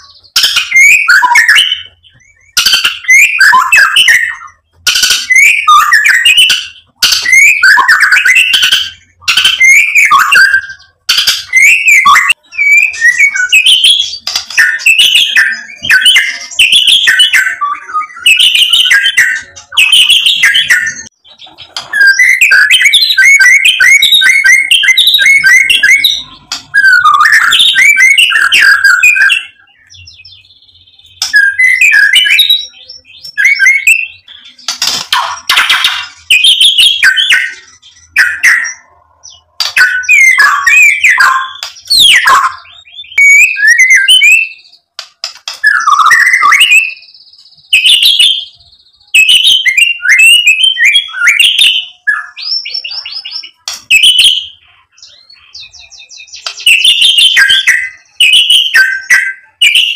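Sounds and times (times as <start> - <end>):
bird singing whistles and chatter: 0.0 - 59.9.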